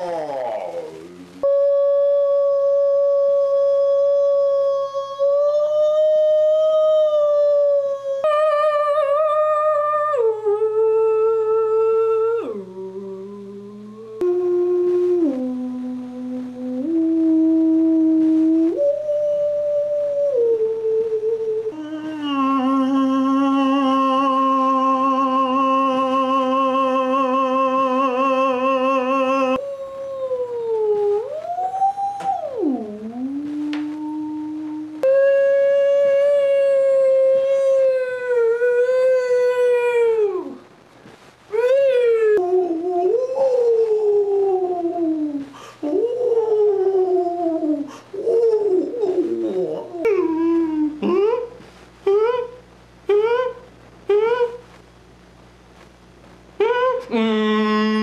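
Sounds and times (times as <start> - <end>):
people imitating whale calls: 0.0 - 40.6.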